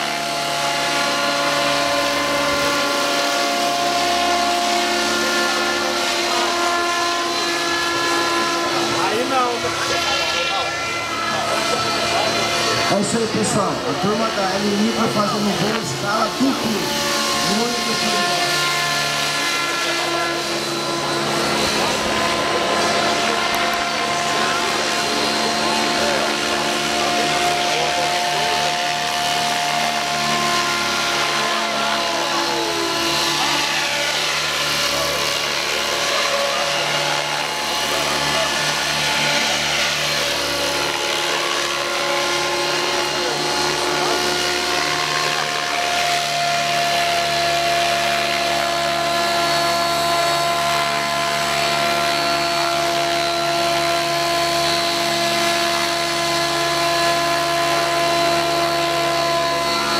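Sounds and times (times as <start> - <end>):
model helicopter rotor whine: 0.0 - 59.9.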